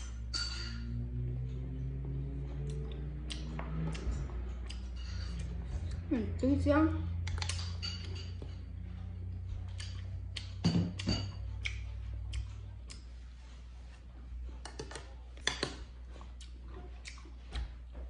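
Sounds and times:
low steady hum: 0.0 - 18.0
wet chewing and mouth smacks: 2.6 - 6.1, 7.2 - 8.2, 9.6 - 13.1, 14.6 - 17.9
spoon scraping ceramic dish: 4.9 - 5.6.

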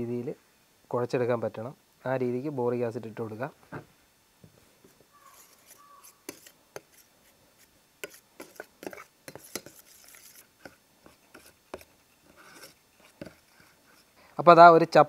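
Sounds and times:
metal spoon scraping steel plate: 5.2 - 7.1, 8.0 - 13.4.

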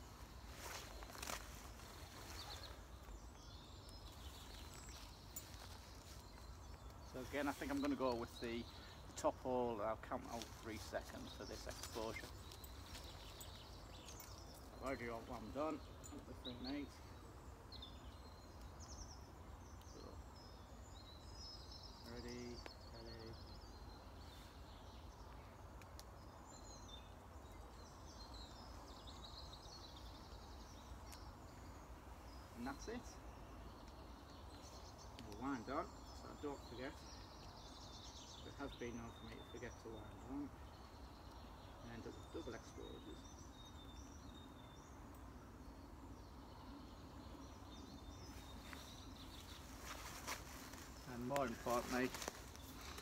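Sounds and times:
small birds chirping: 0.0 - 53.0
faint clicks: 25.3 - 26.2.

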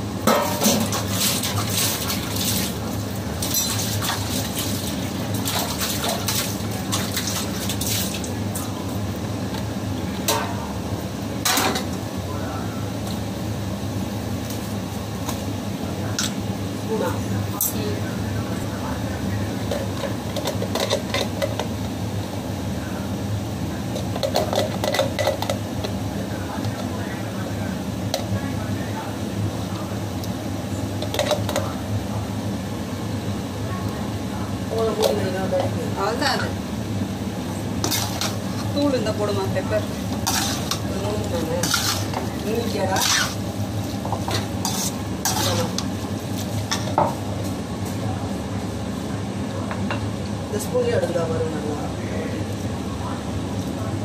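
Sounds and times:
low mechanical hum: 0.0 - 54.0
skimmer scraping metal pan: 37.8 - 38.9, 39.8 - 43.5, 44.2 - 45.8.

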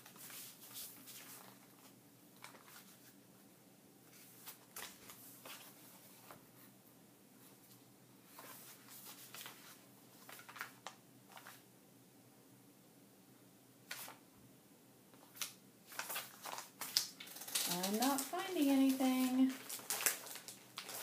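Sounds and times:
plastic packaging rustling: 8.3 - 11.6, 15.2 - 21.0.

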